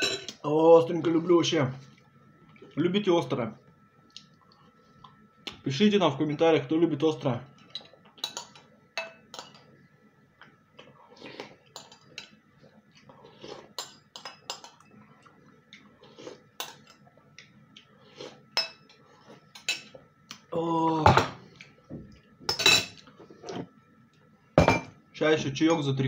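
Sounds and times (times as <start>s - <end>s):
spoon clinking on ceramic bowl: 8.2s - 9.6s.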